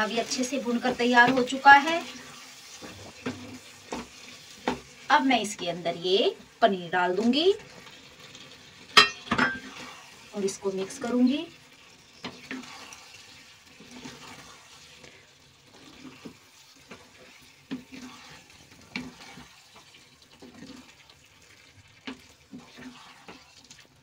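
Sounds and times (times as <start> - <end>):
spatula scraping wet food: 12.1 - 21.0, 22.0 - 23.9.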